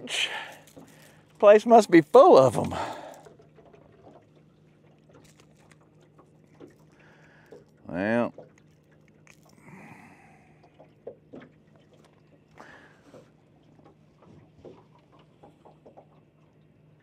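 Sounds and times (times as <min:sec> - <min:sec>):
fishing tackle clicking and rustling: 0:00.0 - 0:04.2, 0:04.9 - 0:09.6
low steady hum: 0:00.0 - 0:17.0.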